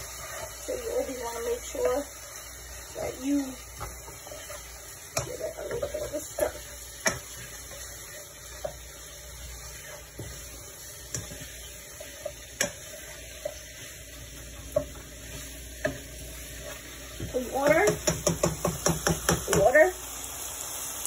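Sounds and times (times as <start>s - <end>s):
curry sizzling: 0.0s - 21.0s
spoon knocking and scraping pot: 3.7s - 9.0s, 9.8s - 13.9s, 14.6s - 19.8s.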